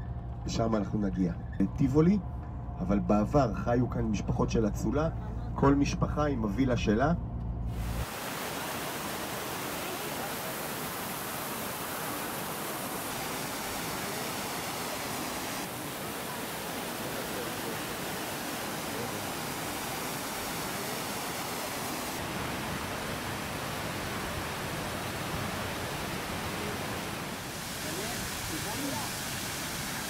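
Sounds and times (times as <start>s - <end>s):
steady broad hiss: 26.2s - 30.0s.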